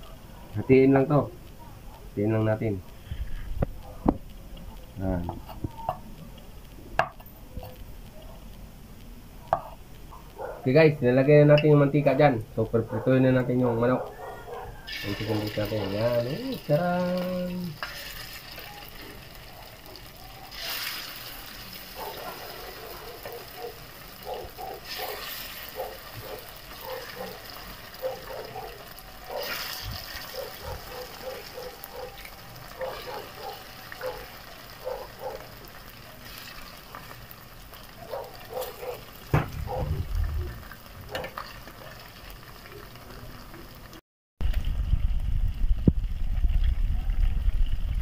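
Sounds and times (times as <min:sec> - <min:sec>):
chicken sizzling in oil: 0:14.8 - 0:39.4, 0:40.0 - 0:48.0.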